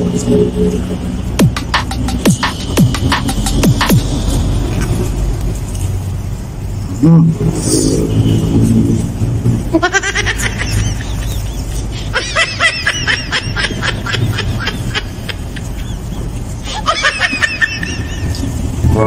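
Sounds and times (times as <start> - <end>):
steady low hum: 0.0 - 19.0
person laughing: 9.7 - 18.6.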